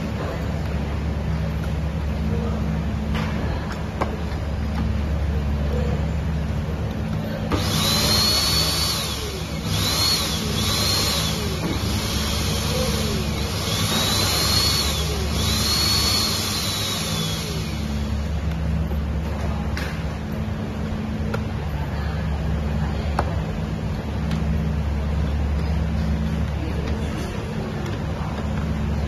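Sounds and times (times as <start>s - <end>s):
steady low hum: 0.0s - 29.0s
suction motor whining: 7.5s - 18.3s.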